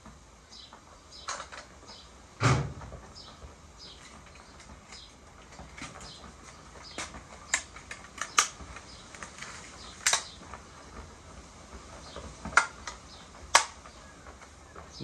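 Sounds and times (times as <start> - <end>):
air gun clicks: 7.5 - 10.4.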